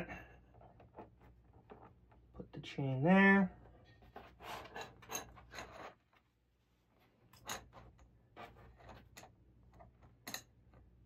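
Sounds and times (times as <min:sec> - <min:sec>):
soft rustling on cardboard: 0:05.7 - 0:09.1.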